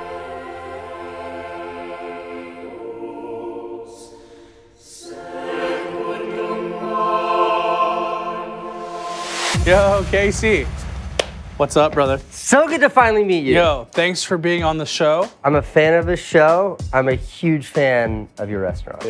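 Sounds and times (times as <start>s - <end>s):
choir singing held chords: 0.0s - 12.5s.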